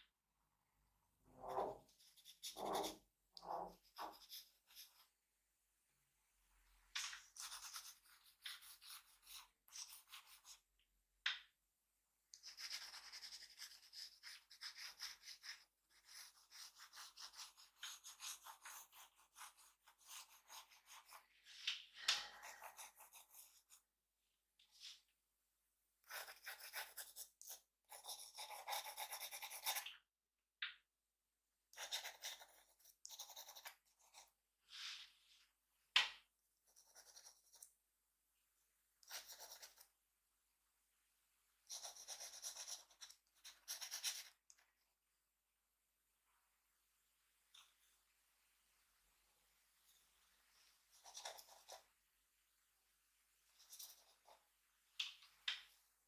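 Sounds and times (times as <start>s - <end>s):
drawing tool scratching paper: 1.4s - 5.1s, 7.3s - 10.6s, 12.4s - 21.2s, 22.2s - 23.8s, 26.0s - 29.8s, 31.8s - 34.3s, 36.7s - 37.6s, 41.7s - 44.3s.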